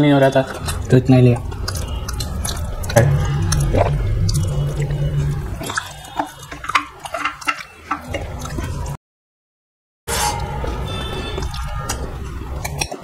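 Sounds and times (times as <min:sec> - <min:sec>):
low steady hum: 0:00.1 - 0:09.0.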